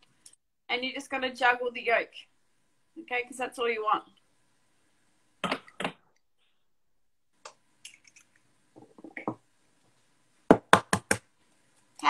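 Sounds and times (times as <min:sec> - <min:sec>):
sharp taps: 0:10.5 - 0:11.2.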